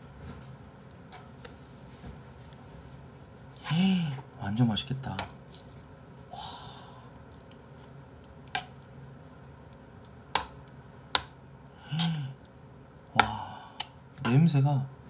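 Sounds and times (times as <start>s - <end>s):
spoon stirring porridge squishing: 4.5s - 6.3s, 7.1s - 15.0s.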